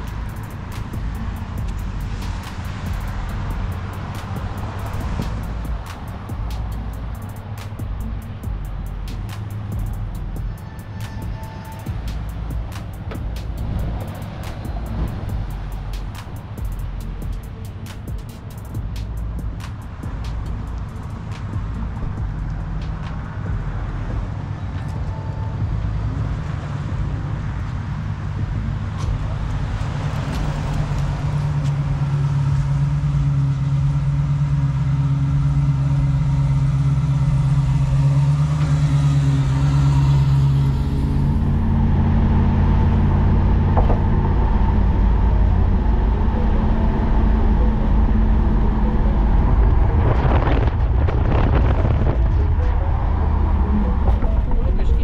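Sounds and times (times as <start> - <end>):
car engine and road noise: 0.0 - 55.0.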